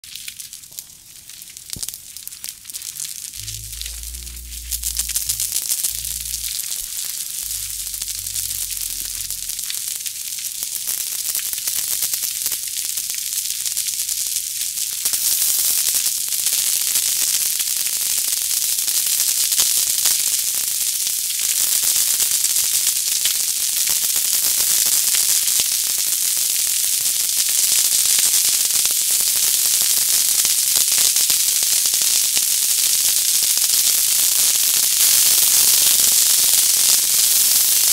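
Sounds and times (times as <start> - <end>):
fireworks crackling and banging: 0.2 - 12.3.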